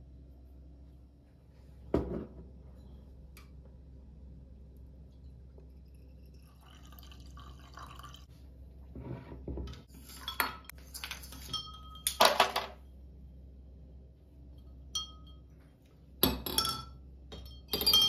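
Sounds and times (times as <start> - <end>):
liquid trickling into glass: 5.8 - 8.3
glass clinks and knocks: 9.6 - 12.8, 14.9 - 15.5, 16.2 - 18.0.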